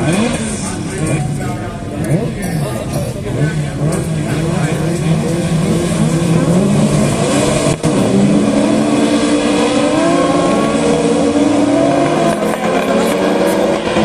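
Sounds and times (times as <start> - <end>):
car engines revving: 0.0 - 14.0.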